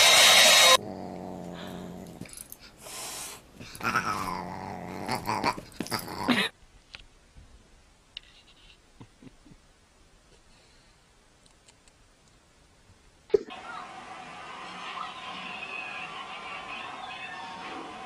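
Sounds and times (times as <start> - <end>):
hair dryer blowing: 0.0 - 0.8
pet growling: 0.6 - 2.8, 3.6 - 6.5.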